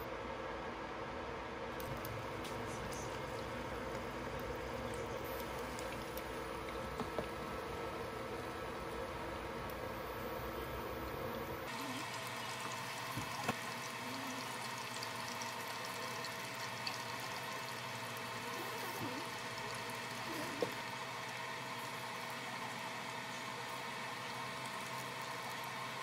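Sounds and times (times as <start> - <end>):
food sizzling in oil: 11.7 - 26.0.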